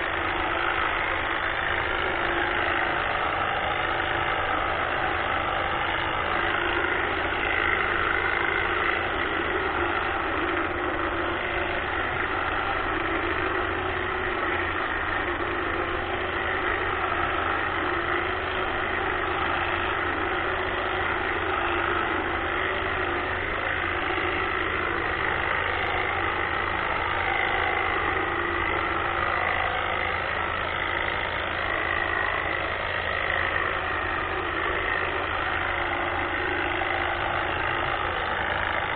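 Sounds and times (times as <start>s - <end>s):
hedge trimmer buzzing: 0.0s - 38.9s.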